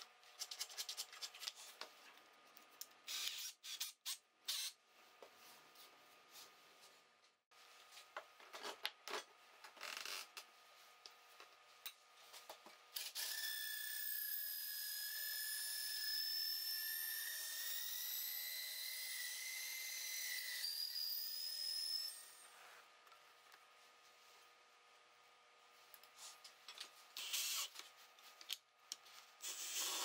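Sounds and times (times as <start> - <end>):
drill whine with blade scraping: 13.0 - 22.5, 27.2 - 27.7, 29.4 - 30.0.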